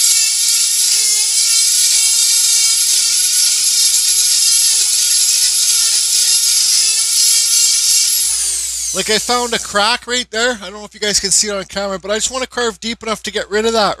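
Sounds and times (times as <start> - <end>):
rotary tool grinding wood: 0.0 - 9.9.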